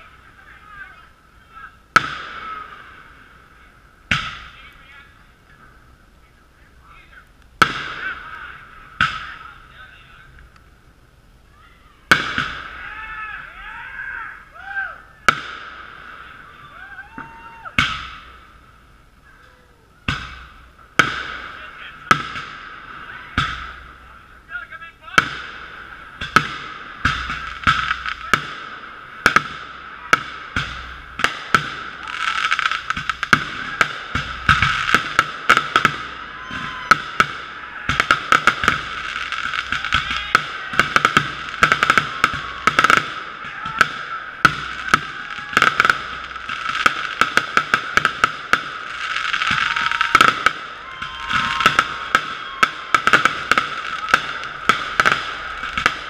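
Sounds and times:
firework bangs: 0.0s - 56.0s
firework crackling: 0.0s - 56.0s
firework whistles: 29.0s - 56.0s.

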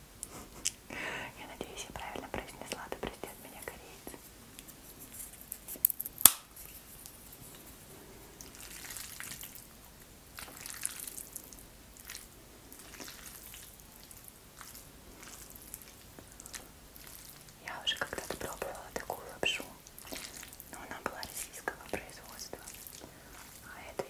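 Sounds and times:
sticky noodles squelching: 8.3s - 18.5s, 19.7s - 22.0s, 22.6s - 23.7s.

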